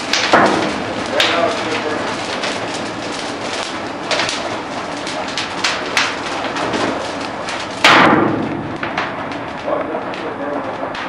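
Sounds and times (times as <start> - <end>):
fire crackling with pops: 0.0 - 11.0
loud burst: 0.0 - 11.0.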